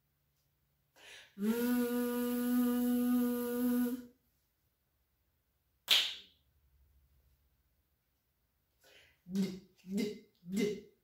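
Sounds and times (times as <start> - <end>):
woman making a buzzing v sound: 1.4 - 4.1
finger snap: 5.8 - 6.4.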